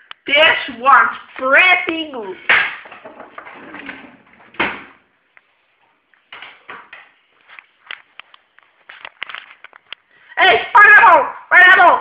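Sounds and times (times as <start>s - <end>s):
camera handling clicks and rustles: 7.4s - 10.1s.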